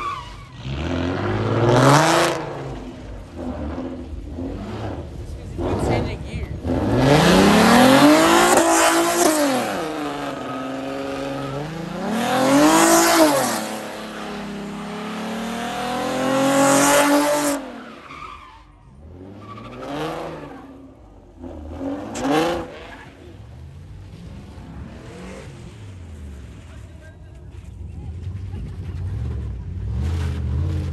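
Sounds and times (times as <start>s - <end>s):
engine revving: 0.6s - 17.8s, 19.0s - 23.3s.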